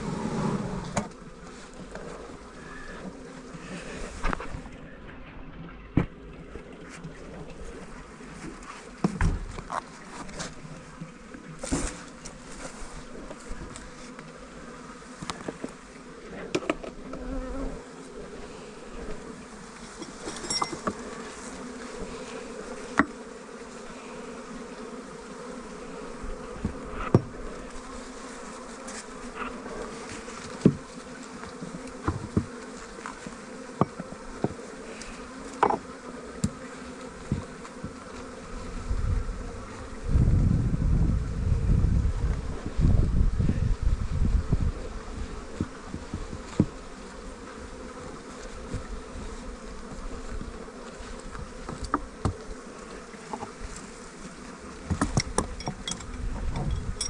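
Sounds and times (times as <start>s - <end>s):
bees buzzing: 0.0s - 57.0s.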